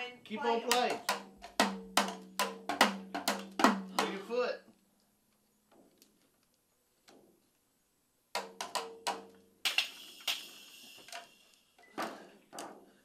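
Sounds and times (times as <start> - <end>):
toy drum hits: 0.6 - 4.2, 8.4 - 11.3.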